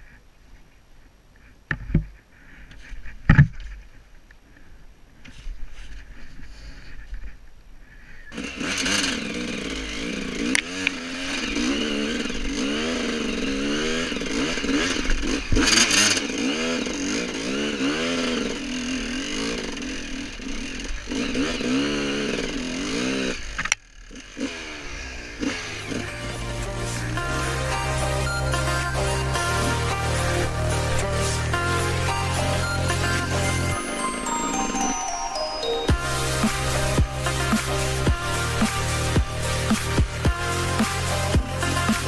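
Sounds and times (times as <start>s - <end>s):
motorcycle engine revving: 8.2s - 34.3s, 35.9s - 42.0s.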